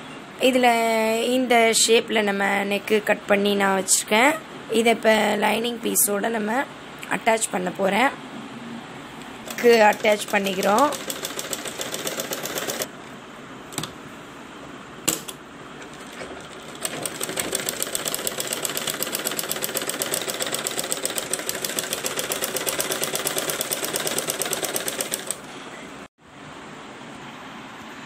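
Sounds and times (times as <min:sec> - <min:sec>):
sewing machine stitching: 0:09.4 - 0:12.9, 0:15.9 - 0:25.5.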